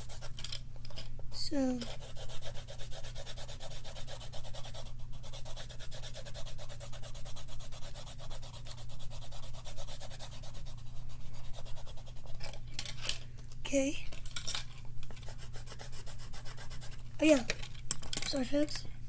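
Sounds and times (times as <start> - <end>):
colouring strokes scratching on paper: 0.0 - 0.3, 1.8 - 12.4, 15.3 - 17.0.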